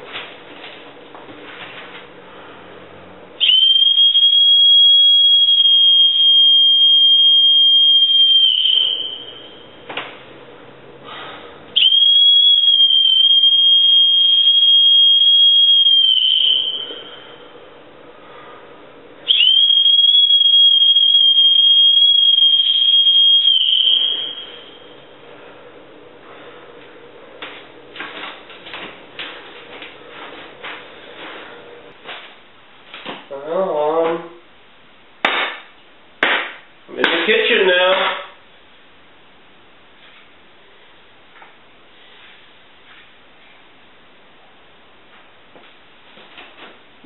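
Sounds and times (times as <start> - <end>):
long shrill whistle: 3.4 - 9.8, 11.8 - 17.5, 19.3 - 25.1.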